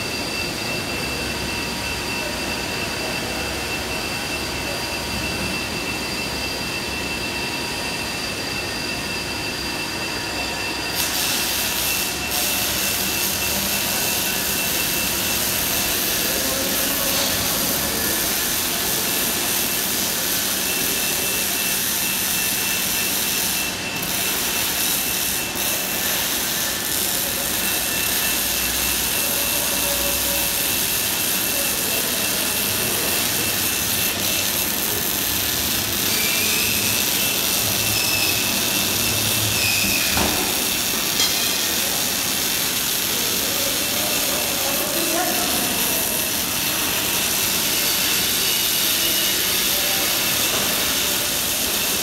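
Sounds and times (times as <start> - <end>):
welding arc crackling hiss: 10.9 - 52.0.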